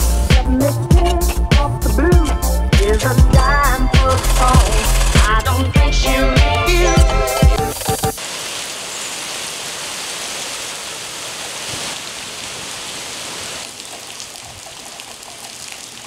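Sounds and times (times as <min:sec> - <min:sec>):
steady rain falling: 0:07.8 - 0:16.0.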